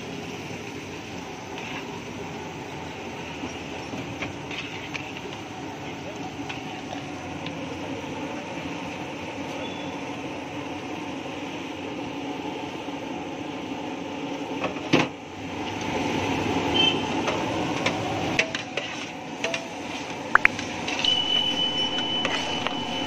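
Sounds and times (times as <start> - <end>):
food sizzling on a griddle: 0.0 - 13.0, 15.3 - 23.0
metal utensils clanking: 18.4 - 23.0.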